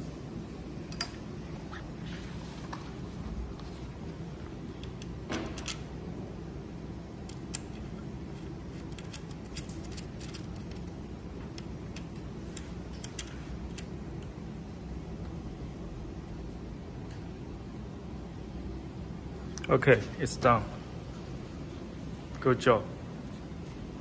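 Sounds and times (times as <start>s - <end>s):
low background hum: 0.0s - 24.0s
hex key clicking on screws: 8.7s - 11.0s.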